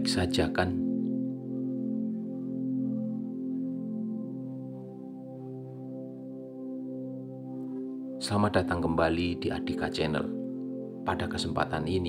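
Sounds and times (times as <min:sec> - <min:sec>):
ambient music of held tones: 0:00.0 - 0:12.0.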